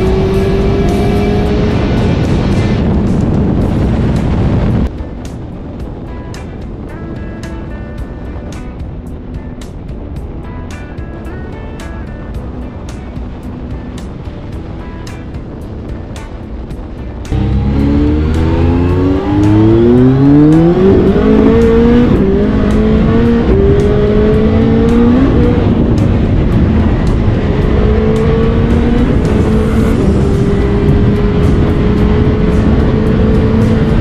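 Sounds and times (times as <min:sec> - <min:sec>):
motorcycle engine accelerating: 0:00.0 - 0:04.9, 0:17.2 - 0:34.0.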